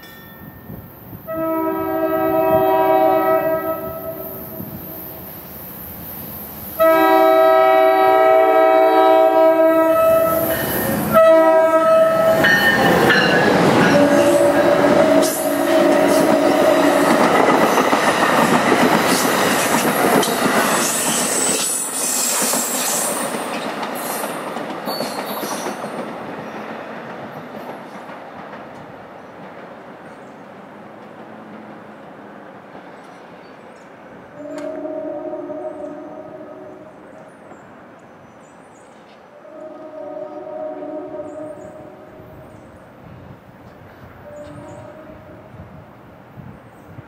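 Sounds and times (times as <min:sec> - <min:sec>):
train horn blasts: 0:01.2 - 0:05.3, 0:06.8 - 0:17.4, 0:34.3 - 0:37.1, 0:39.3 - 0:42.7, 0:44.2 - 0:45.7
train wheels clattering on rails: 0:12.3 - 0:33.9.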